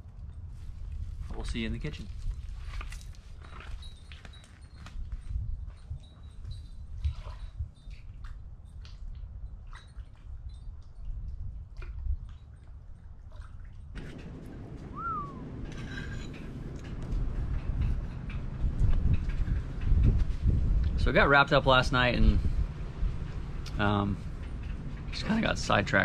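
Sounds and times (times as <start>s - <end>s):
low rumble: 14.0s - 26.0s
rising and falling bird chirp: 14.3s - 15.7s.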